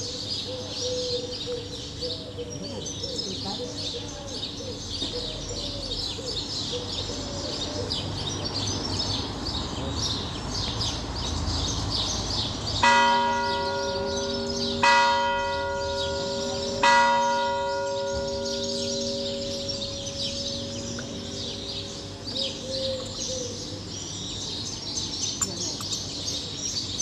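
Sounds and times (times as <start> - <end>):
small birds chirping: 0.0 - 27.0
church bell tolling: 12.8 - 22.4.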